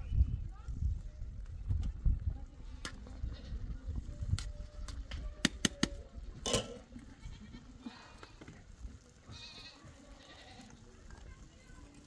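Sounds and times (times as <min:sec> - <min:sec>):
livestock bleating: 0:07.1 - 0:08.0, 0:09.3 - 0:10.8.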